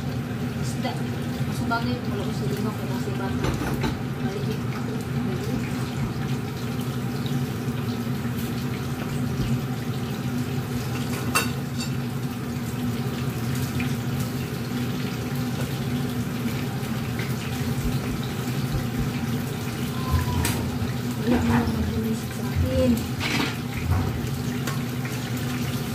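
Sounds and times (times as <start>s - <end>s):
fish sizzling in hot oil: 0.0s - 25.9s.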